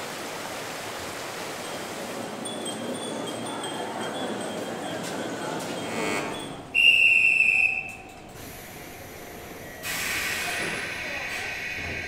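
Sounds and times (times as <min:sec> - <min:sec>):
high-pitched whistle blast: 0:06.8 - 0:08.0
train air hiss: 0:08.4 - 0:12.0.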